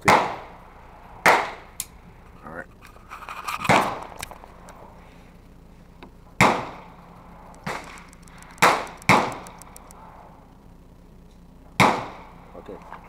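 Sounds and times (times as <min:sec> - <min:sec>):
gunshots: 0:00.0 - 0:00.6, 0:01.2 - 0:01.7, 0:06.4 - 0:07.0, 0:07.6 - 0:09.9, 0:11.8 - 0:12.4.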